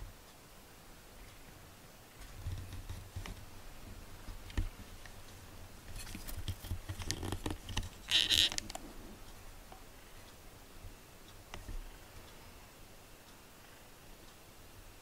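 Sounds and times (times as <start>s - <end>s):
camera handling bumps and rustles: 5.9s - 8.8s
sharp clicks: 6.1s - 8.9s.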